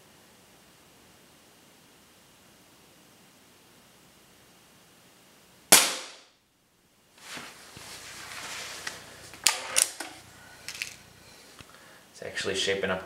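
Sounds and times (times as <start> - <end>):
air rifle shot: 5.7 - 6.3
rustling: 7.1 - 11.8
rifle handling clicks: 9.4 - 11.0.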